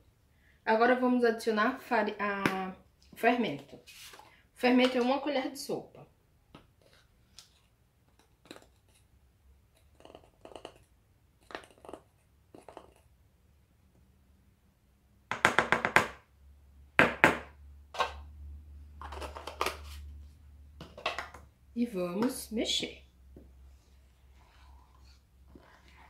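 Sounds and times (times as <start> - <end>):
spoon scraping in plastic jar: 9.7 - 13.1, 24.2 - 26.0.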